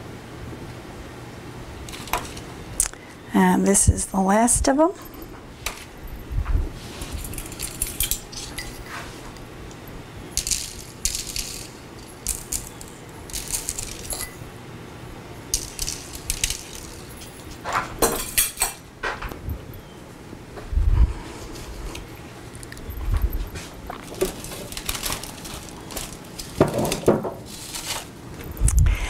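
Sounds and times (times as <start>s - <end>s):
sprinkles rattling in container: 10.4s - 14.2s, 15.5s - 17.4s, 24.2s - 26.6s.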